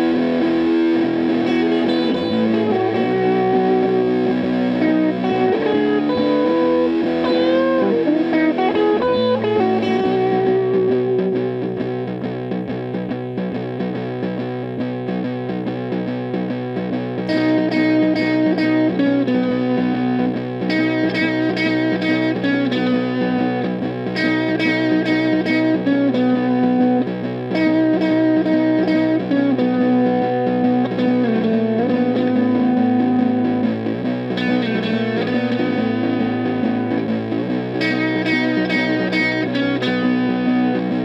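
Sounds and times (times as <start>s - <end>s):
fuzz-distorted electric guitar chords: 0.0s - 41.0s.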